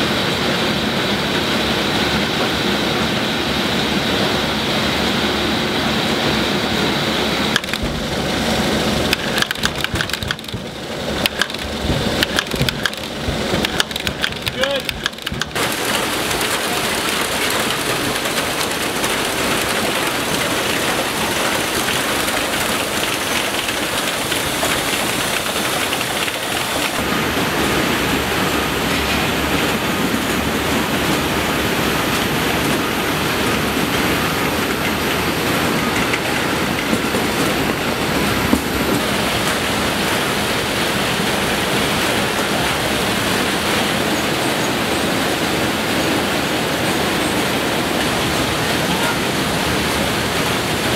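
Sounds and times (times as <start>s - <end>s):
packing line machinery rattling: 6.8s - 50.9s
sharp knocks: 9.1s - 15.6s.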